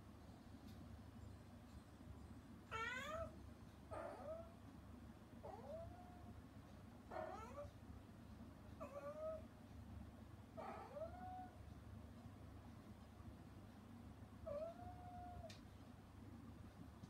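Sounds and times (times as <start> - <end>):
cat meowing: 2.7 - 4.5, 5.4 - 6.3, 7.1 - 7.7, 8.8 - 9.4, 10.6 - 11.6, 14.4 - 15.5.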